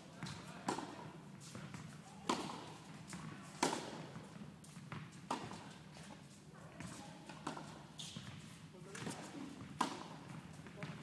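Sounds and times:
tennis ball hitting rackets: 0.2 - 1.0, 1.7 - 4.2, 7.3 - 7.7, 9.0 - 10.6
tennis ball bouncing on court: 0.2 - 5.8, 6.8 - 11.0.

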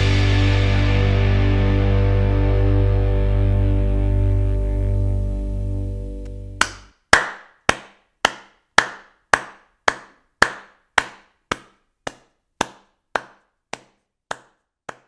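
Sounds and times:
background music: 0.0 - 6.7
sharp knocks or claps: 6.6 - 15.0.

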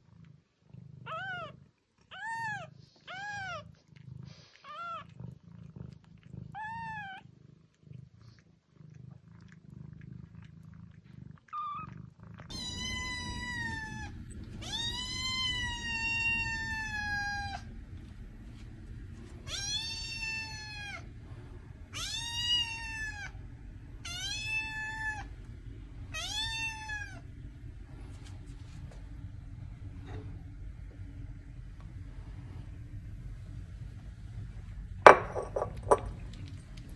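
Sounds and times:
newborn kittens mewing: 1.0 - 3.7, 6.4 - 7.3, 12.5 - 17.7, 19.5 - 21.1, 21.9 - 23.4
kitten meowing insistently: 12.5 - 17.6, 19.5 - 21.0, 22.0 - 23.3, 24.1 - 25.2, 26.2 - 27.2.

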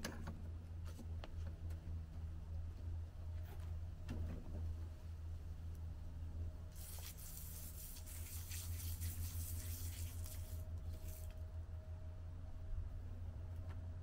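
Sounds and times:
hose running water into bucket: 6.7 - 11.4.

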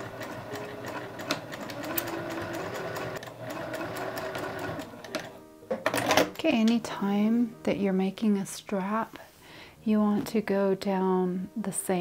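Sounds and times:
sewing machine running: 0.0 - 5.4.

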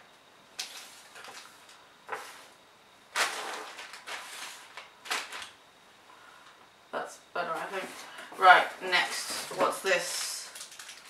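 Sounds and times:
boxes and packets rustling on table: 0.6 - 2.5, 3.1 - 5.6, 7.5 - 11.0.

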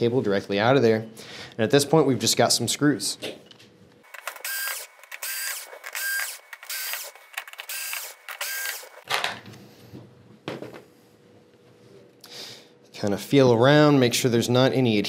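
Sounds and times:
electric screwdriver motor whining: 4.1 - 9.0.

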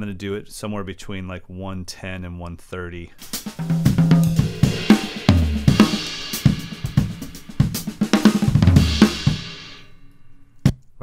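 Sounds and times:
drum kit playing a groove: 3.2 - 9.8.

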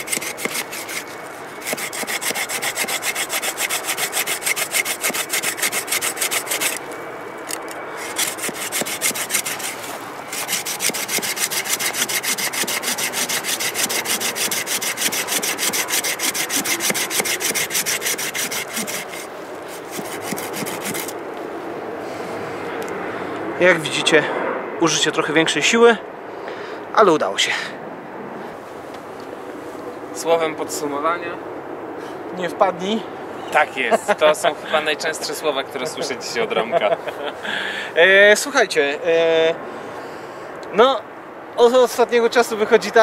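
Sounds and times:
hand saw cutting root: 0.0 - 6.9, 7.5 - 21.2.

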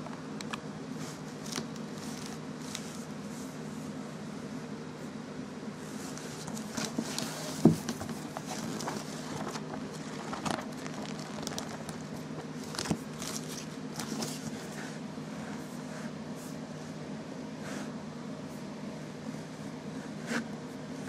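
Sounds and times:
steady low hum: 0.0 - 21.0
book pages flipping: 0.4 - 3.4, 5.9 - 14.9.

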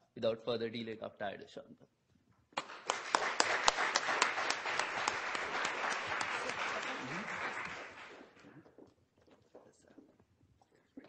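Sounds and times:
audience applauding: 2.6 - 8.5.

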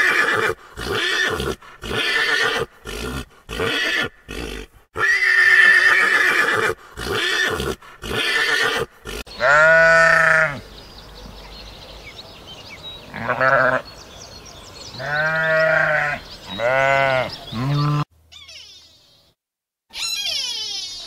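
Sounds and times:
sheep bleating: 0.8 - 10.6, 13.1 - 13.8, 15.0 - 18.1.

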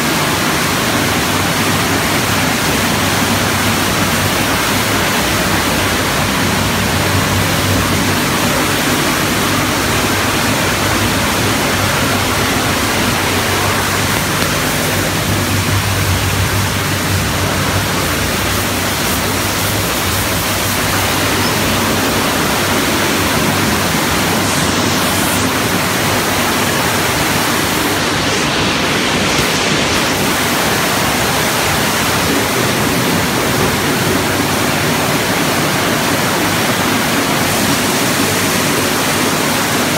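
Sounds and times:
water spraying: 0.0 - 39.9
low hum: 1.9 - 35.5.

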